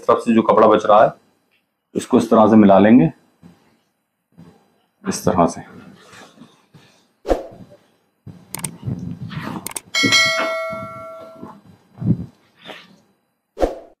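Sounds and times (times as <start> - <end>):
notification bell ding: 10.0 - 11.5.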